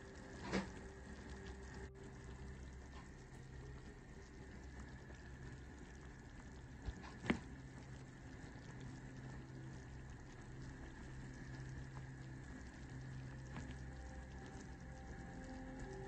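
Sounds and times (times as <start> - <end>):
broth boiling in a pot: 0.0 - 16.0
low hum: 0.0 - 16.0.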